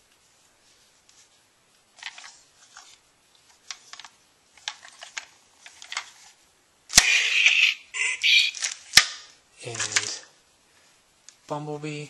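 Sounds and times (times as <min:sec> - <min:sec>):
sharp click: 0:06.9 - 0:07.8.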